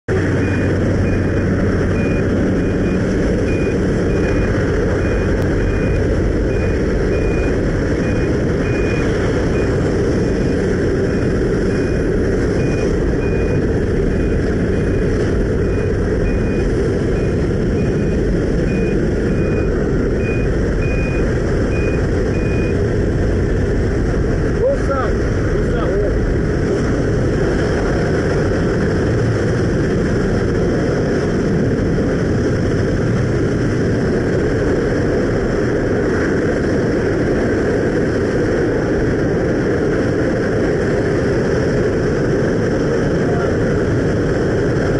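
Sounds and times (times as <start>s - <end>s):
plane engine and propeller drone: 0.0s - 44.9s
wind rushing: 0.1s - 44.9s
short high beep: 10.3s - 22.8s.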